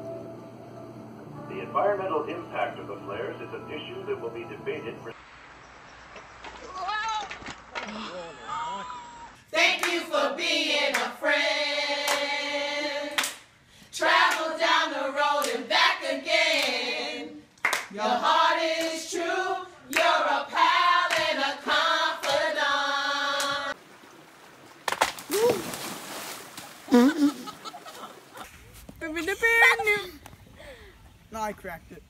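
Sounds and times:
women singing together: 9.5s - 23.8s
hand claps: 9.8s - 10.0s, 10.9s - 11.1s, 13.2s - 13.4s, 17.6s - 17.9s, 21.1s - 21.3s, 22.2s - 22.4s.

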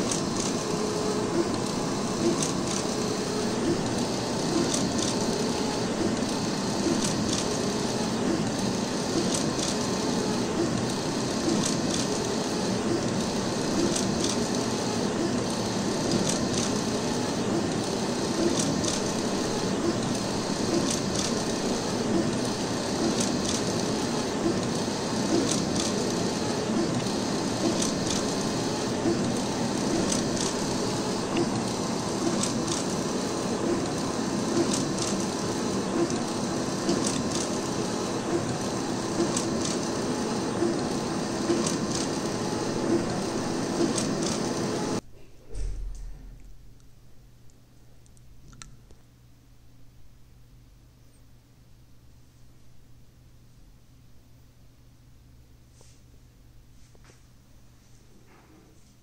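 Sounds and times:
printer clicking: 0.0s - 45.0s
printer mechanical whir: 0.0s - 45.0s.

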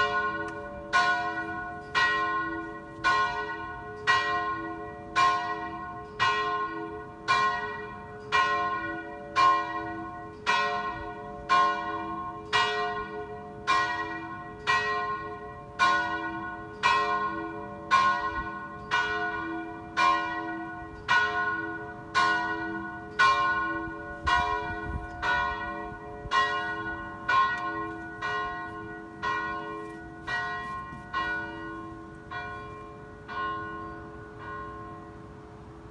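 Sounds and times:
church bell ringing: 0.0s - 35.9s.

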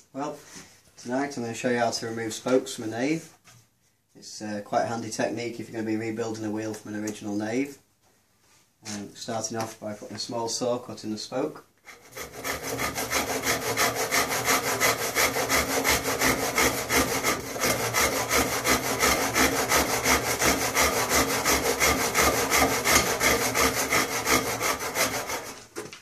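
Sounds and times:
handsaw cutting wood: 11.8s - 25.8s.

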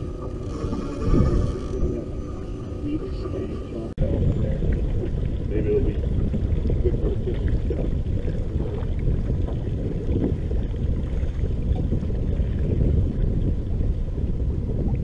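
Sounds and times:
low wind rumble on microphone: 0.0s - 15.0s.

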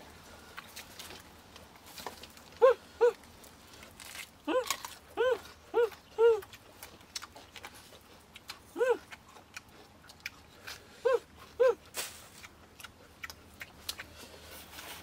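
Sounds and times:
crunching and chewing greens: 0.0s - 15.0s
puppy whimpering: 2.6s - 3.2s, 4.5s - 6.5s, 8.7s - 9.2s, 11.0s - 11.9s.

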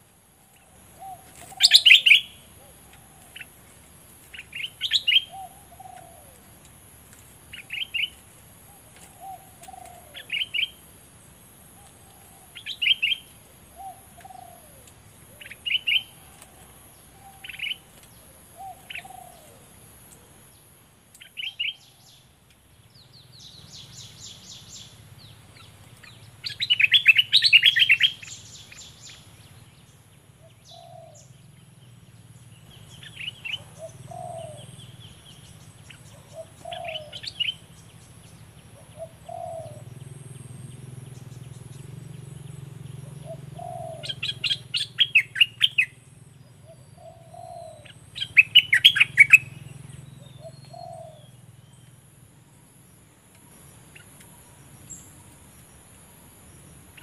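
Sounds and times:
bulbul chirping: 47.0s - 51.2s.

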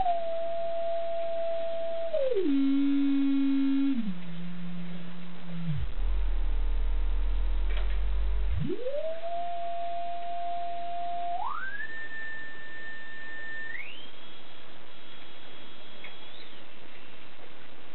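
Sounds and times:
sine test tone rising: 0.0s - 16.6s.

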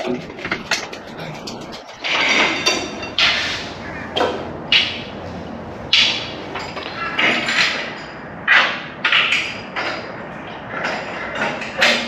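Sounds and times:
steel parts clanking: 0.0s - 3.8s.

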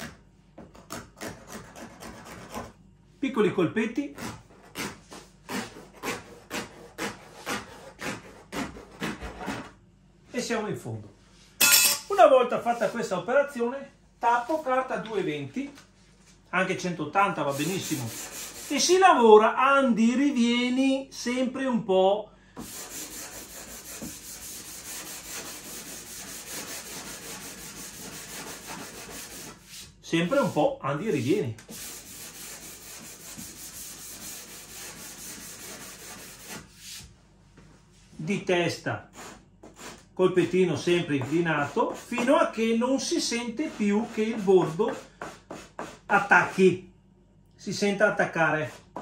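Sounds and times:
hand sanding: 1.1s - 2.7s, 4.2s - 9.6s, 12.6s - 13.1s, 17.4s - 19.0s, 22.6s - 37.1s, 40.8s - 42.4s, 43.1s - 46.6s
scraper blade scraping edge: 22.7s - 29.7s.

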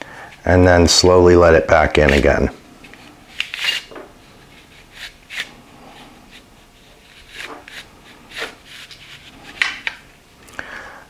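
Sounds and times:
soft rubbing and scrapes: 1.9s - 9.9s.

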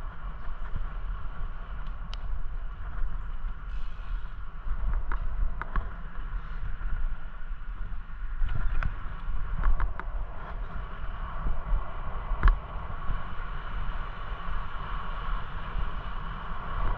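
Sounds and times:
tyres rumbling on asphalt: 0.0s - 16.9s
wind rushing over microphone: 0.0s - 16.9s.

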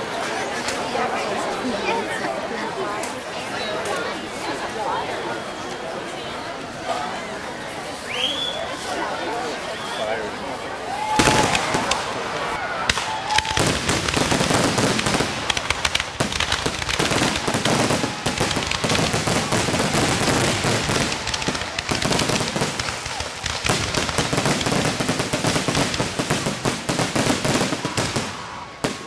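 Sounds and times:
fireworks cracks and bangs: 11.1s - 29.0s.

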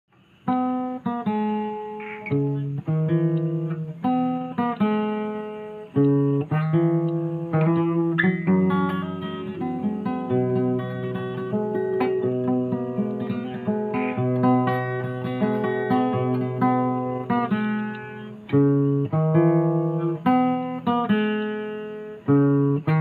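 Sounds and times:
acoustic guitar picking: 0.1s - 23.0s.

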